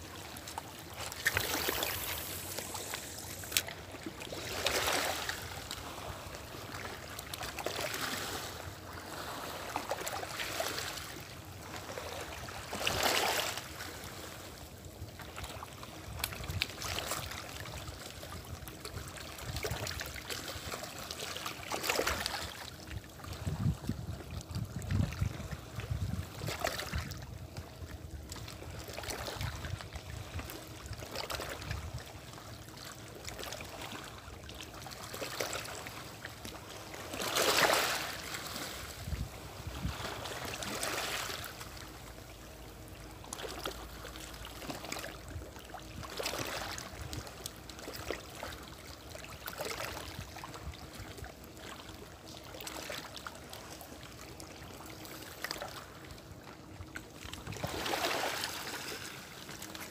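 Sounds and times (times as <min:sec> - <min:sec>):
small waves lapping on rocks: 0:00.0 - 0:59.9
water splash: 0:01.0 - 0:05.4.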